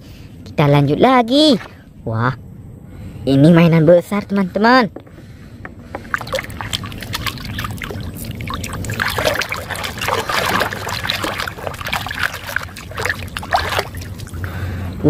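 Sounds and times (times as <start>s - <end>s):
water sloshing in plastic basin: 5.9s - 14.6s.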